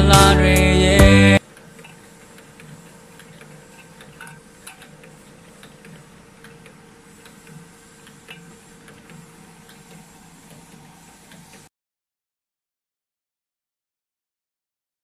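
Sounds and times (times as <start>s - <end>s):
can sealing machine humming: 0.0s - 11.7s.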